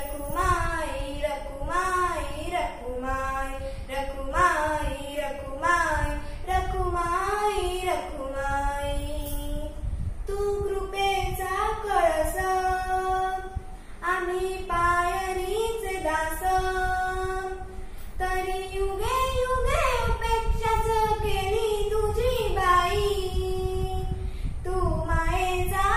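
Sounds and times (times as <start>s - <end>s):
girl singing devotional song: 0.0s - 25.9s.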